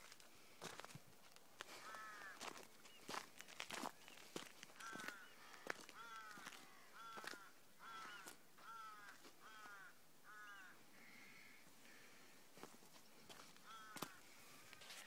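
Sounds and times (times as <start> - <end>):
crow cawing: 1.6 - 2.7, 4.6 - 12.7, 13.3 - 15.0.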